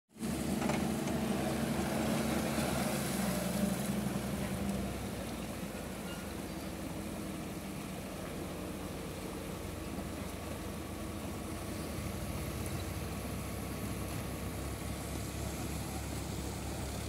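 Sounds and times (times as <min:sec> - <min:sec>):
excavator diesel engine running: 0:00.2 - 0:17.0
rushing hiss of water: 0:00.2 - 0:17.0.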